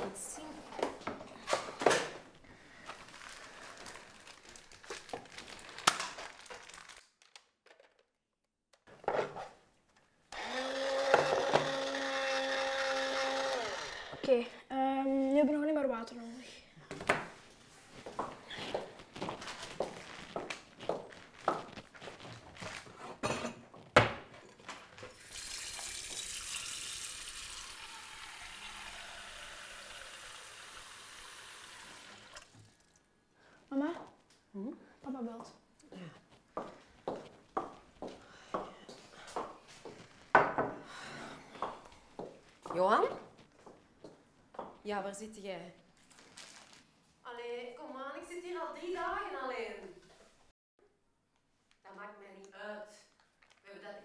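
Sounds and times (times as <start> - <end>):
plastic bag crinkling: 2.8 - 8.1, 18.9 - 23.0, 46.0 - 47.0
small electric motor humming: 10.4 - 14.3
running water: 25.1 - 33.0.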